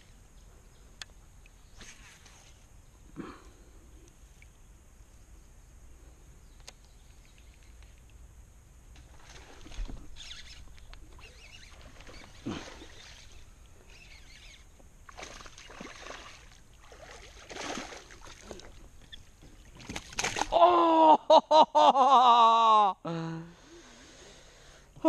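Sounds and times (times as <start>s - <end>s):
fish splashing in water: 15.1s - 18.8s, 19.8s - 20.5s.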